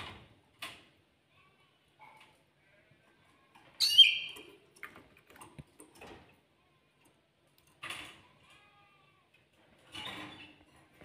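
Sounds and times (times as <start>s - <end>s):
canary call: 3.8s - 4.4s.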